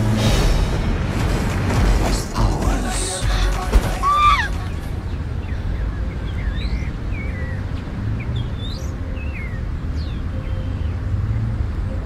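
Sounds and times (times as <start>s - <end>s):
small birds chirping: 4.2s - 11.6s.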